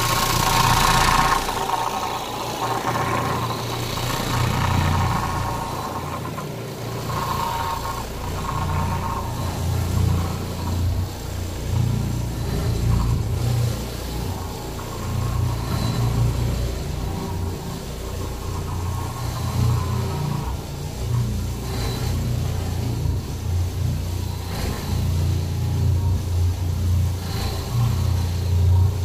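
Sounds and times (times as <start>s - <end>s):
carpet cleaner motor hum: 0.0s - 29.0s
machine rattle: 0.0s - 29.0s.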